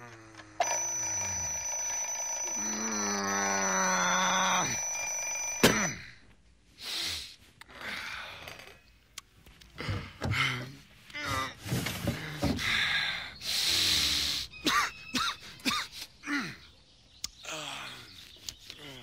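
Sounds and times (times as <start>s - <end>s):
alarm clock ringing: 0.6s - 5.9s
falling groan: 2.5s - 5.0s
faint breathy sounds: 12.1s - 14.6s.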